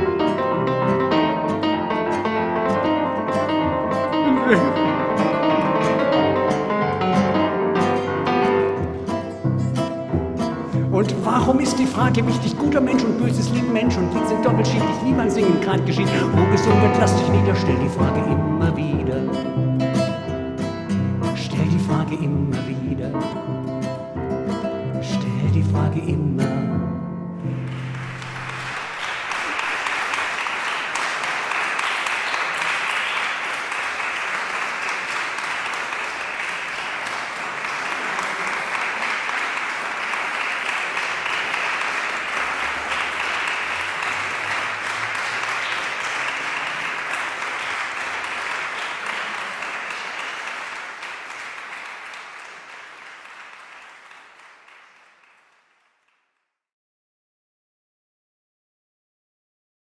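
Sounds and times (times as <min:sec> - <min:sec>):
audience applauding: 0:00.0 - 0:18.3, 0:27.4 - 0:56.3.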